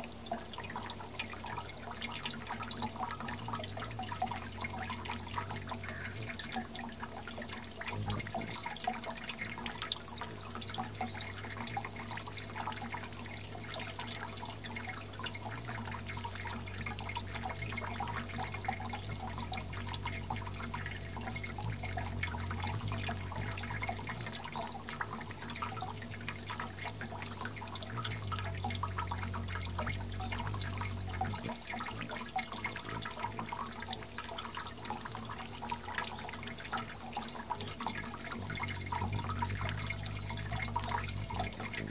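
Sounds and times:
fountain water splashing: 0.0 - 41.9
low hum: 9.6 - 34.1, 36.0 - 41.9.

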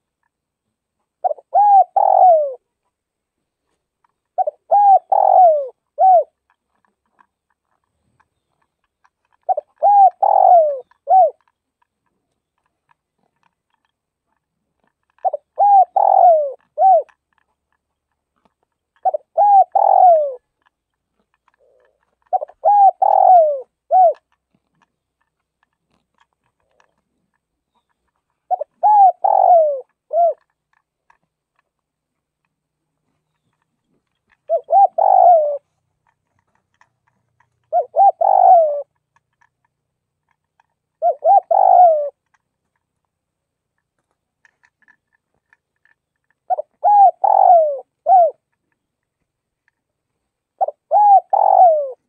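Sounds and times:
dove cooing: 1.2 - 2.7, 4.4 - 6.6, 9.3 - 11.6, 15.1 - 17.4, 19.0 - 20.7, 21.4 - 24.4, 26.5 - 30.6, 34.3 - 35.7, 37.6 - 39.4, 40.6 - 42.3, 46.4 - 48.6, 50.6 - 52.0.

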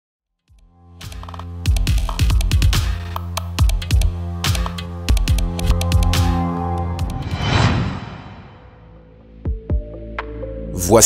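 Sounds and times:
whoosh: 6.4 - 9.1.

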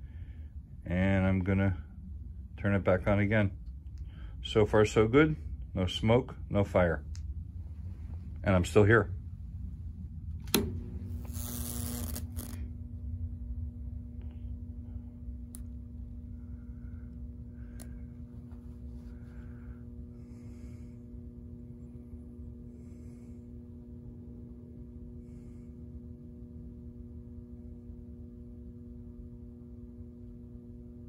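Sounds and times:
transformer humming: 8.0 - 18.2.

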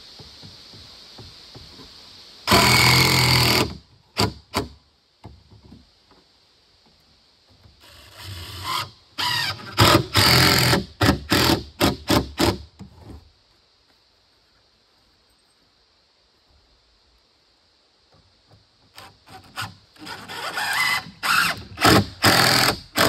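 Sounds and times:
power tool motor bursts: 2.5 - 4.6, 8.0 - 12.6, 19.5 - 23.0.

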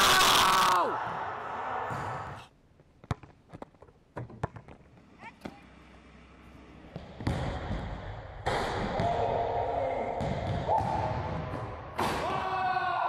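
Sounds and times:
basketball bouncing: 3.0 - 5.6, 6.9 - 9.2, 10.2 - 12.1.

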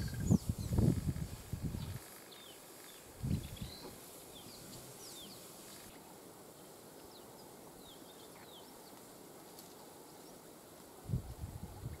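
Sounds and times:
wild birds chirping: 0.0 - 11.1
steady outdoor hiss: 0.0 - 12.0.

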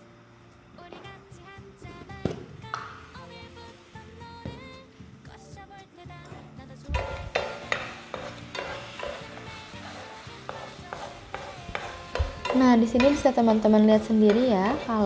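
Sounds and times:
eggs sizzling in a pan: 7.0 - 15.0
spatula scraping a pan: 7.0 - 15.0.

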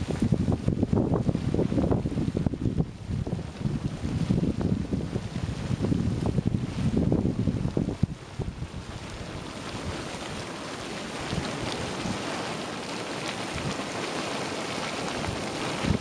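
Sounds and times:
hot water bubbling and splashing: 0.0 - 16.0
small gurgles: 8.8 - 16.0.

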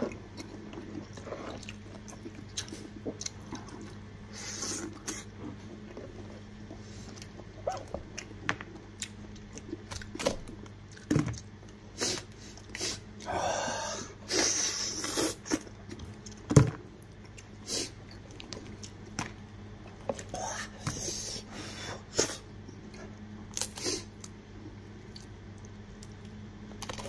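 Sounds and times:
chewing: 0.0 - 13.3.

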